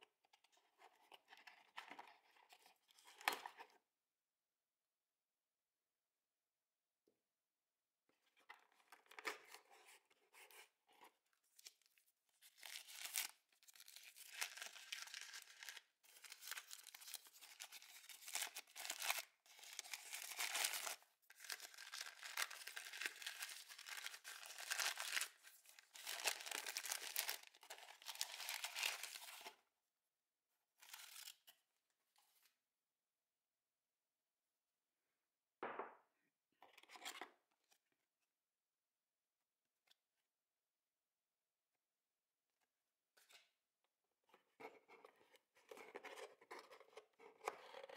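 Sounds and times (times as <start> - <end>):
paper wrapping rustling and tearing: 12.5 - 29.5.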